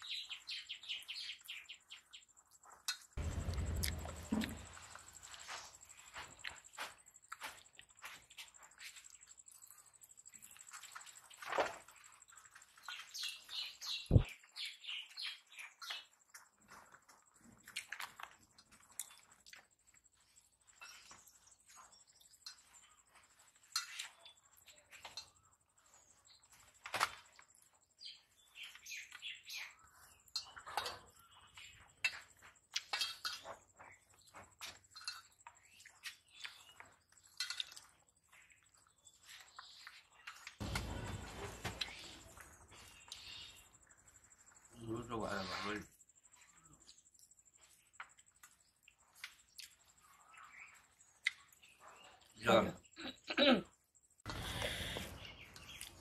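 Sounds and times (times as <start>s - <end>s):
bird chirping: 0.0s - 10.8s, 12.0s - 17.3s, 20.0s - 56.0s
mouth smacks and chewing: 2.4s - 4.9s, 16.7s - 20.0s, 35.0s - 38.1s, 48.0s - 50.0s, 51.1s - 52.3s
people eating from steel plates: 2.4s - 13.2s, 15.4s - 27.4s, 29.8s - 44.6s.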